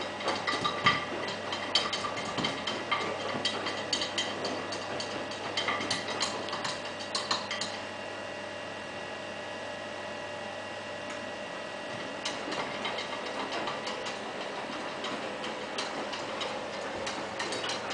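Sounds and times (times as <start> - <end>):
cat pawing inside washing machine: 0.0 - 7.8, 11.9 - 17.9
steady hum: 0.0 - 17.9.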